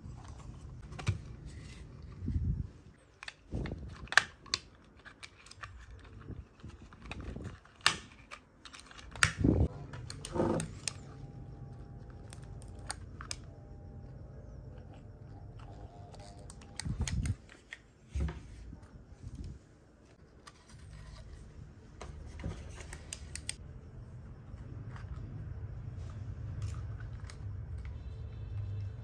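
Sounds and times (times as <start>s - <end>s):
steady low hum: 9.4s - 29.0s.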